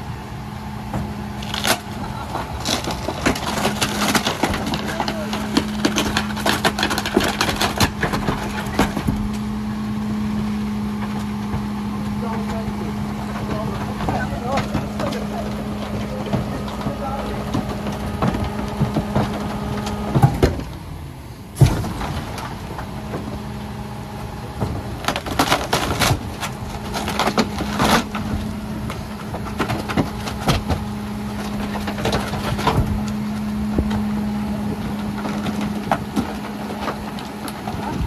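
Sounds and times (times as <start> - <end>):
truck engine running: 0.0 - 38.0
wooden frame cracking and snapping: 1.4 - 9.4, 24.9 - 33.2.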